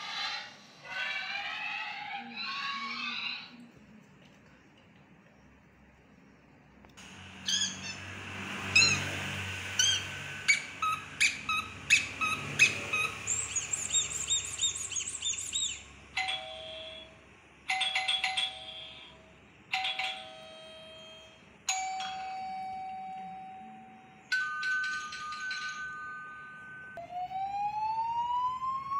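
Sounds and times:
birds chirping: 4.5 - 15.9
two-tone doorbell chime: 16.2 - 27.0.

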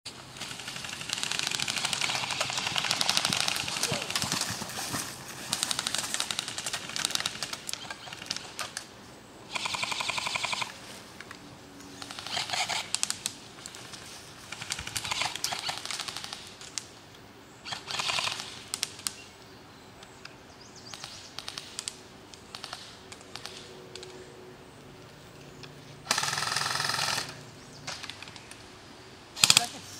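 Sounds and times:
airsoft guns firing bursts: 0.4 - 4.4, 9.5 - 10.7, 12.0 - 13.2, 14.5 - 16.6, 17.7 - 19.1, 20.9 - 23.7, 26.1 - 27.4, 29.4 - 29.8.

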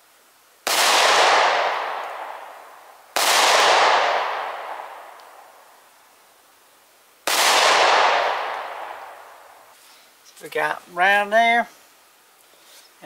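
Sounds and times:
pistol shots: 0.7 - 2.4, 3.2 - 5.0, 7.3 - 9.0.

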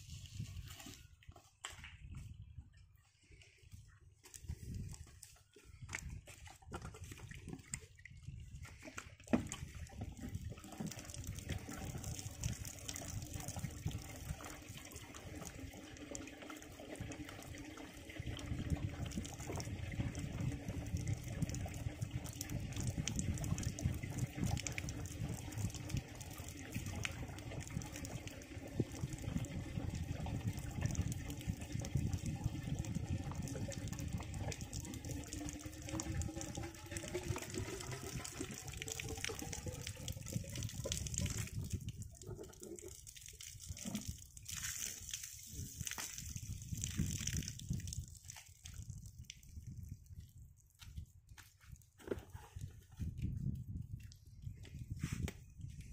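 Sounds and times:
water pouring: 5.8 - 50.2.

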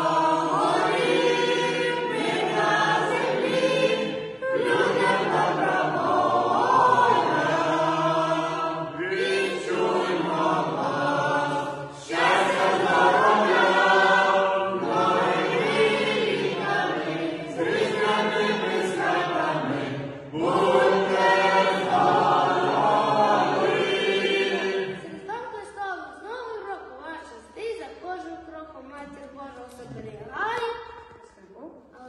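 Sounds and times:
choir singing a cappella: 0.0 - 25.4.

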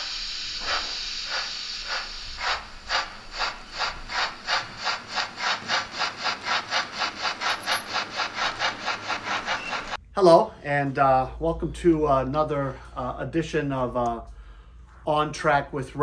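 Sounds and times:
model steam locomotive chuffs: 0.0 - 10.0.

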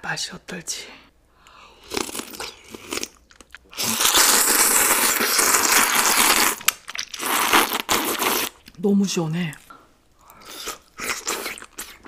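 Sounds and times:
slurping noodles: 1.8 - 8.6
wet chewing: 10.2 - 12.0.

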